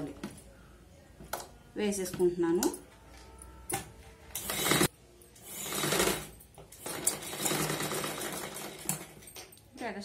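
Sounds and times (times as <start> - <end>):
sewing machine stitching: 4.4 - 4.9, 5.5 - 9.2.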